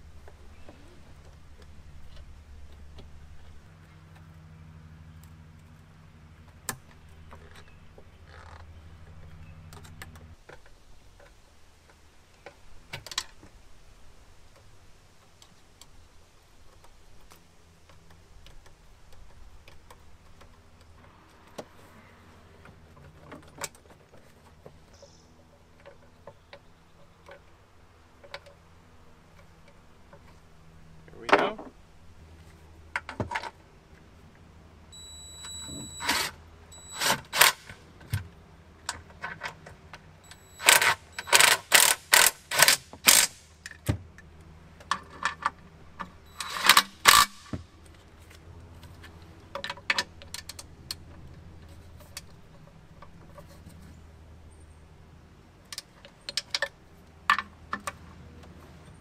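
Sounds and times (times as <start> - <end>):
faint low hum: 0.0 - 42.3
screwdriver on metal hose clamp: 40.2 - 43.8, 46.3 - 47.6.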